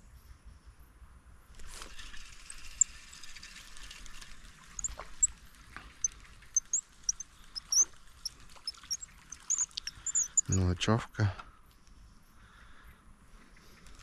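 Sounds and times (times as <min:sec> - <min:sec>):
small birds chirping: 0:04.7 - 0:10.9.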